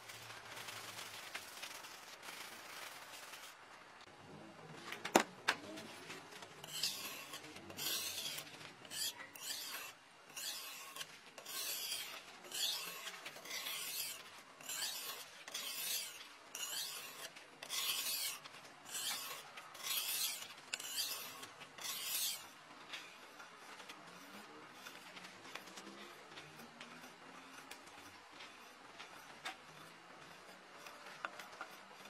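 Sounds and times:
file scraping steel blade: 0:06.4 - 0:32.0.

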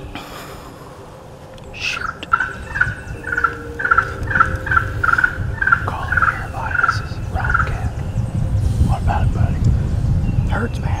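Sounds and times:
turkey call yelps: 0:01.9 - 0:07.7.

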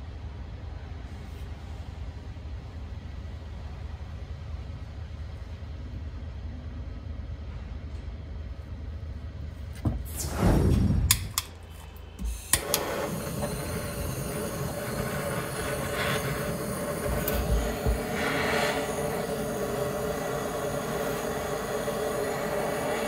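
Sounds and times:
torch flame hissing: 0:10.0 - 0:11.4, 0:12.2 - 0:23.0
torch igniter clicks: 0:10.2 - 0:11.6, 0:12.2 - 0:23.0.

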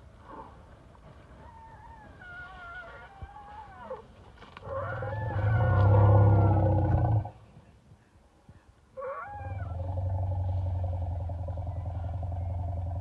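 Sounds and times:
elephants rumbling: 0:04.6 - 0:07.4, 0:09.4 - 0:13.0.

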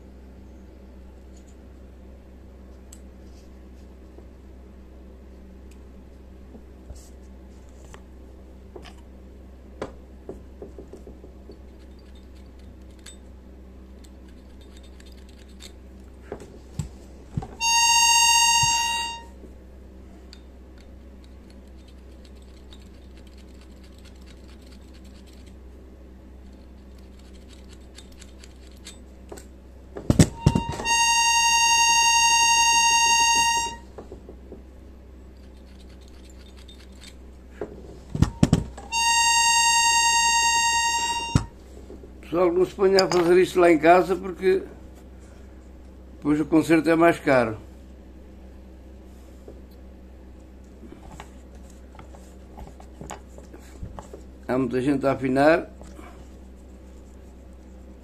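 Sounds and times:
tool scratching and ticking on reeds: 0:14.0 - 0:15.8, 0:21.2 - 0:25.6, 0:26.4 - 0:29.0, 0:35.4 - 0:37.2
accordion reed high note: 0:17.6 - 0:19.4, 0:30.4 - 0:33.8, 0:38.9 - 0:41.5.

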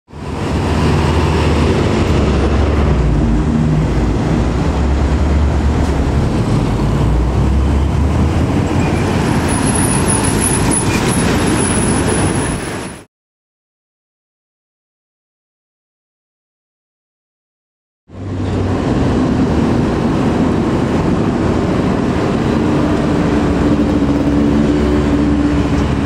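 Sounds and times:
heavy trucks passing: 0:00.1 - 0:13.1, 0:18.1 - 0:26.0
traffic and tyre noise: 0:00.1 - 0:13.1, 0:18.1 - 0:26.0.

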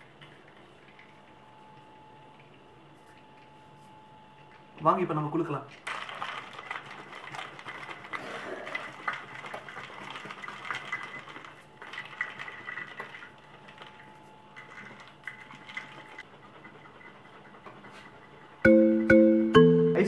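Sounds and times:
ice rattling in shaken flask: 0:05.8 - 0:16.2.

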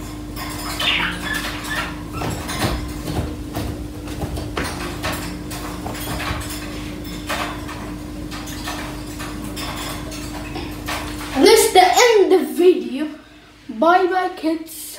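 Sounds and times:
high squeak: 0:00.6 - 0:02.5.

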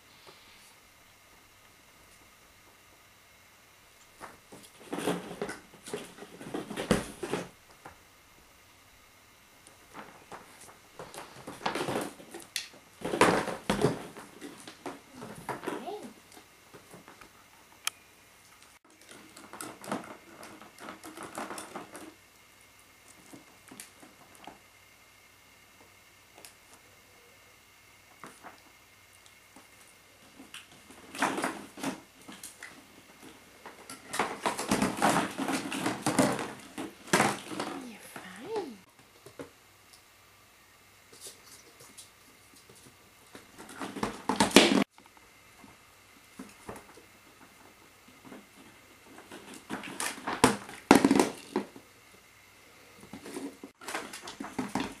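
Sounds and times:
plastic balls clattering and rustling: 0:30.2 - 0:37.9.

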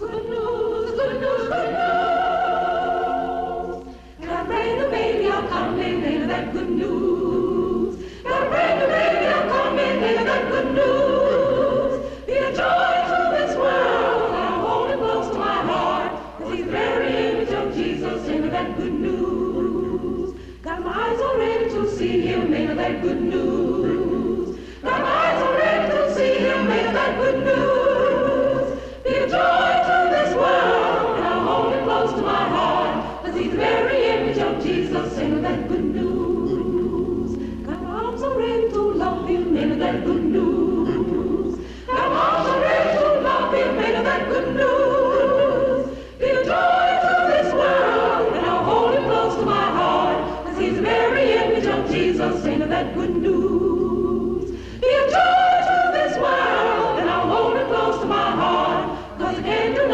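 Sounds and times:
choir singing: 0:00.0 - 0:59.9.

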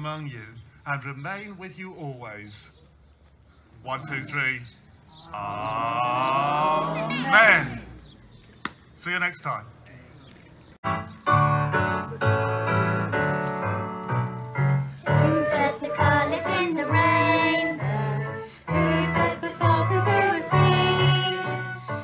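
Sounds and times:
instrumental backing track: 0:10.8 - 0:22.0
girls singing into microphones: 0:15.1 - 0:21.9.

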